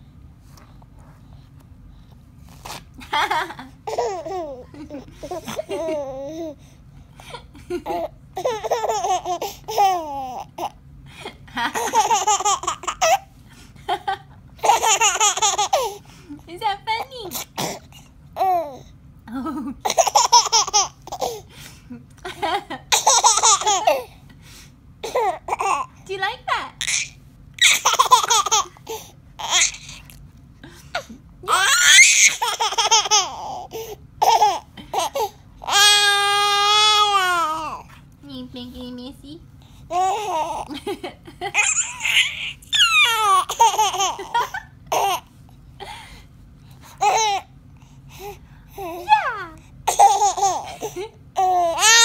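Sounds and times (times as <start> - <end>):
baby laughing: 3.0 - 6.6, 7.7 - 10.7, 11.6 - 13.3, 13.9 - 16.0, 19.8 - 21.4, 22.4 - 24.1, 26.8 - 30.1, 31.0 - 37.8, 39.9 - 45.3, 49.9 - 52.0
baby squealing: 26.8 - 28.7, 29.4 - 30.1, 31.5 - 33.6, 41.6 - 44.1, 51.4 - 52.0.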